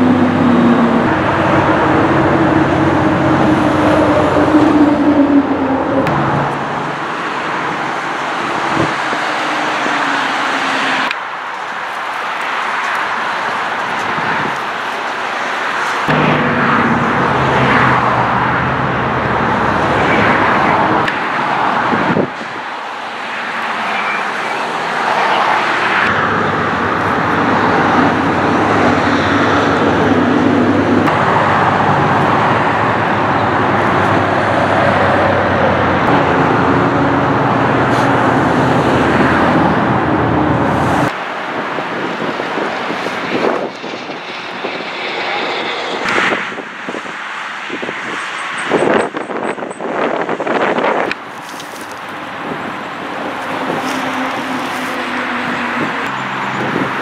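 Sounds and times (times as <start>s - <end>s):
passing road traffic: 0.0s - 57.0s.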